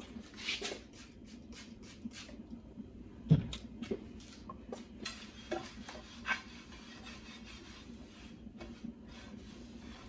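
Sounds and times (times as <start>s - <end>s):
cloth rubbing on metal tray: 5.2s - 10.0s.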